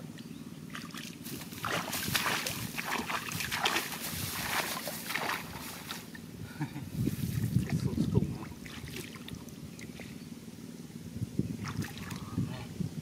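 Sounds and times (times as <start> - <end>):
muddy water splashing: 0.2 - 6.2, 7.2 - 10.2, 11.6 - 12.4.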